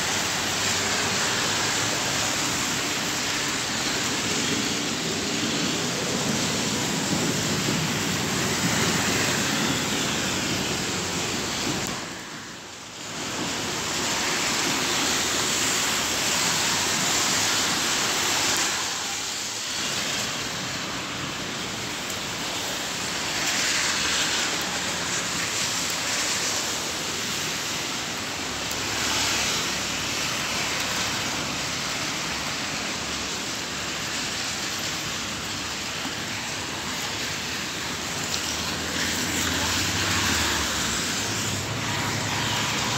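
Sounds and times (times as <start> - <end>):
car traffic on wet streets: 0.0 - 42.9
rain hiss: 0.0 - 42.9.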